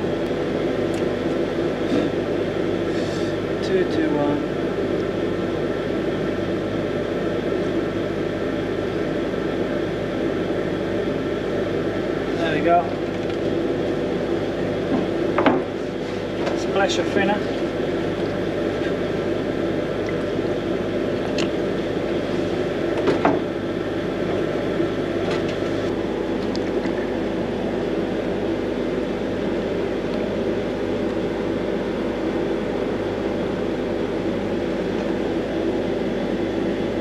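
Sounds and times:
machine drone humming: 0.0s - 37.0s.

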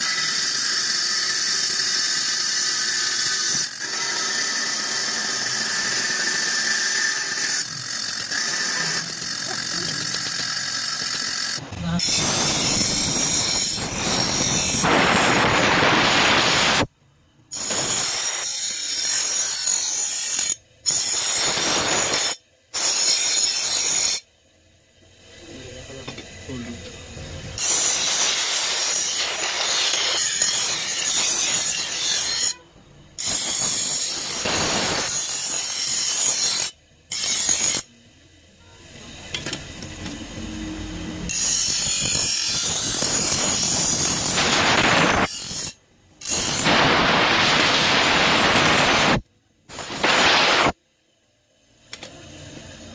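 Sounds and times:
bench grinder grinding steel: 0.0s - 16.9s, 17.5s - 24.2s, 25.3s - 32.6s, 33.2s - 38.0s, 38.9s - 50.7s.

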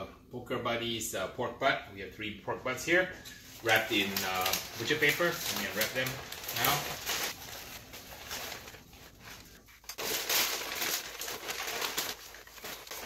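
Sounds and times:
paper rustling and crinkling: 3.4s - 13.0s.

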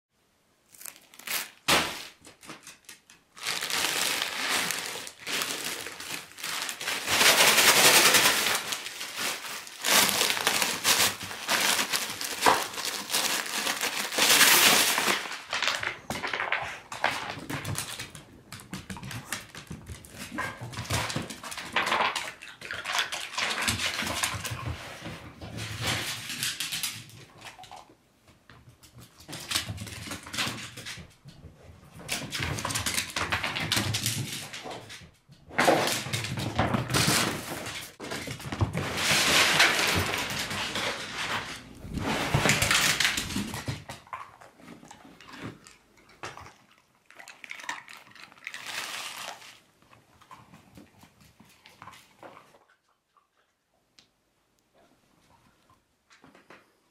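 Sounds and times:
plastic bag crinkling: 0.7s - 18.1s, 35.8s - 43.8s, 47.4s - 49.6s
ice chips clattering on floor: 0.8s - 18.0s.

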